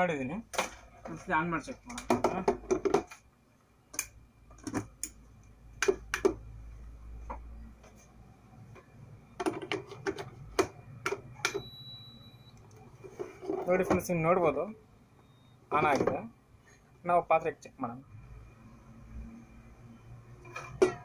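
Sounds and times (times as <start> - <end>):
high steady beep: 11.5 - 12.6, 15.2 - 15.6.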